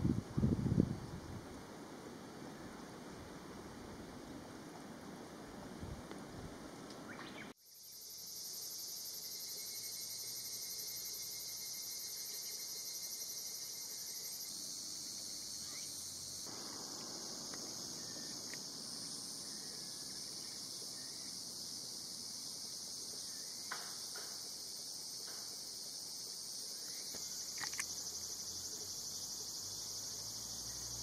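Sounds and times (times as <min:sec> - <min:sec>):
cicadas singing: 0:06.8 - 0:31.0.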